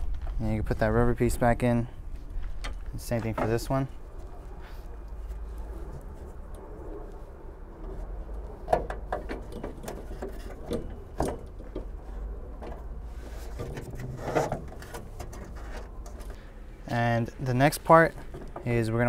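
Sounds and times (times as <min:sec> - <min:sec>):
low steady rumble: 0:00.0 - 0:19.0
scraping rub: 0:12.0 - 0:16.5.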